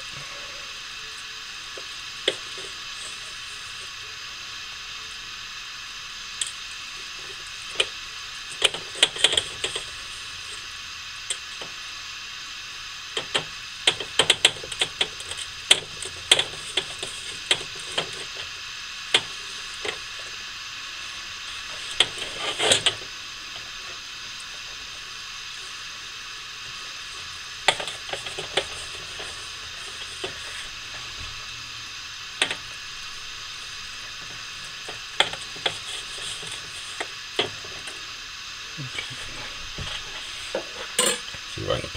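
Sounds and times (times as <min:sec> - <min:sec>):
steady hiss: 0:00.0 - 0:41.9.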